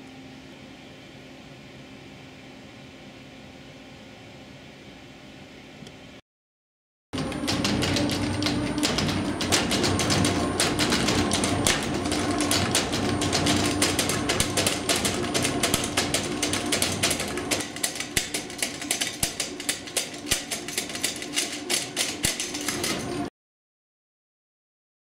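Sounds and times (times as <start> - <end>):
wheel clattering knocks: 7.2 - 23.3.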